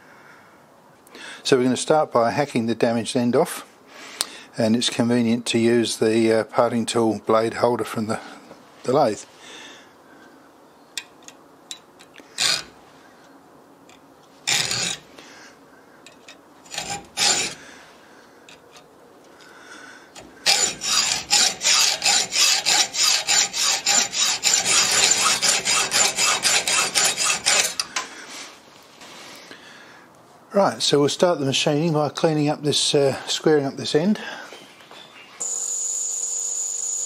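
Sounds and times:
hacksaw cutting steel: 12.4 - 12.8, 14.4 - 15.1, 16.1 - 17.6, 20.2 - 28.1.

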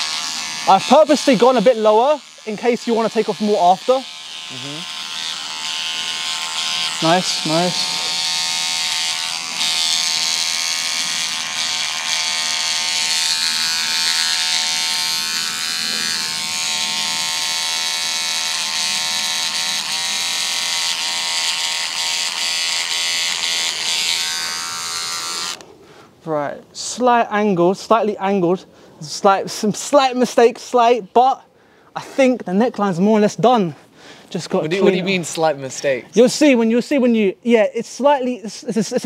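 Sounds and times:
electric beard trimmer buzzing: 0.0 - 25.6, 34.7 - 35.5.

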